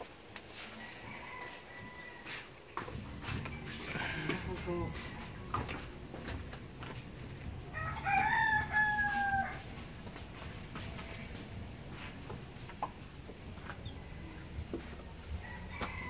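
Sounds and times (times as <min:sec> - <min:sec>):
rooster crowing: 0:00.6 - 0:02.5, 0:07.7 - 0:09.7, 0:14.0 - 0:16.0.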